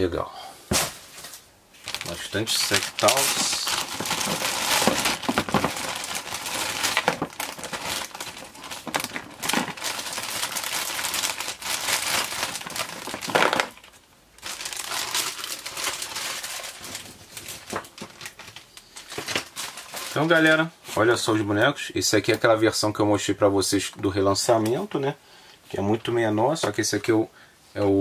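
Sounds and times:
packaging crinkling and rustling: 0.7 - 21.4.

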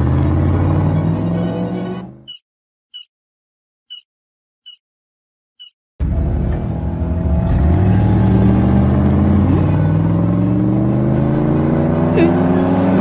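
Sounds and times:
cartoon race car engines revving: 6.0 - 13.0.

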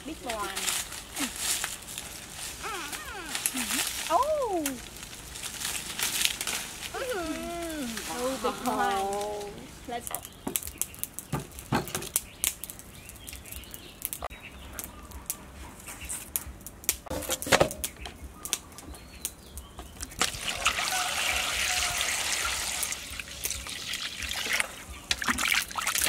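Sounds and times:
tap water pouring into metal bowl: 20.2 - 26.0.

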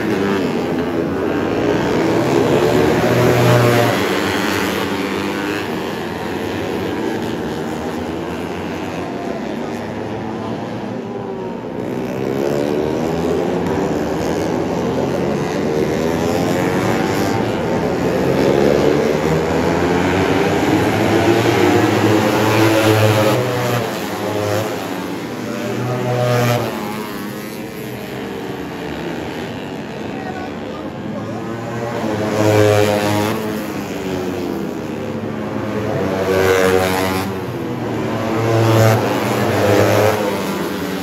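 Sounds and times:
motorcycles revving past: 0.0 - 41.0.

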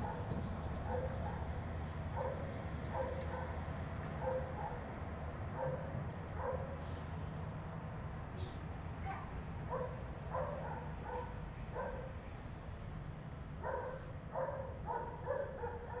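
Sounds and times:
dog barking: 0.0 - 3.6, 4.2 - 4.9, 5.6 - 6.8, 9.0 - 12.1, 13.6 - 16.0.

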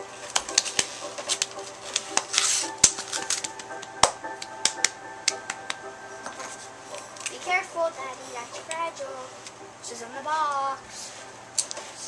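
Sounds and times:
cardboard packaging clicks and taps: 0.3 - 6.5.

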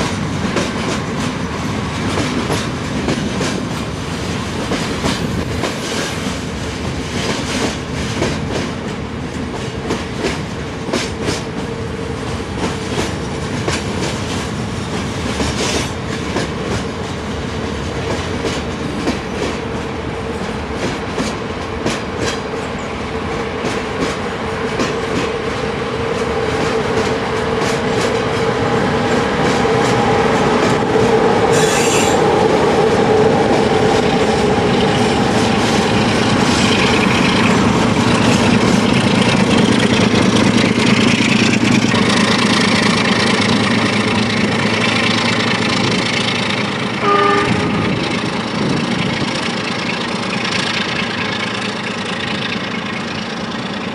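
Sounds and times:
train wheels clicking over rail joints: 0.0 - 47.1, 47.7 - 53.9
diesel locomotive: 0.0 - 53.9
train wheel squeal: 31.4 - 32.4.

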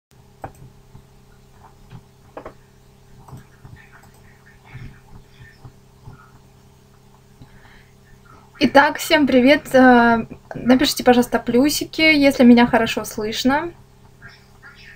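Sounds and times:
low electrical hum: 0.2 - 14.9
computer mouse clicking: 0.4 - 2.6, 3.2 - 6.4.

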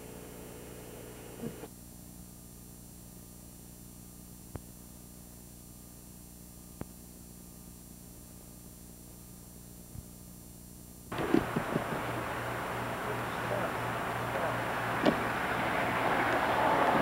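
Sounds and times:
electrical mains hum: 0.0 - 17.0
recording noise: 11.0 - 17.0.

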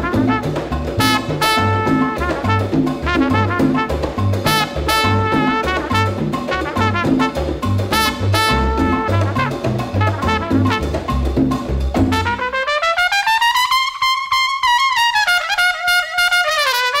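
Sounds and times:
brass playing: 0.0 - 11.4, 12.0 - 17.0
bass and drums rhythm: 0.0 - 12.8.

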